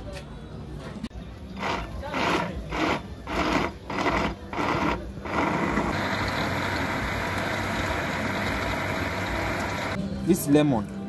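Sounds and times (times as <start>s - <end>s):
blender chopping fruit: 1.6s - 6.5s.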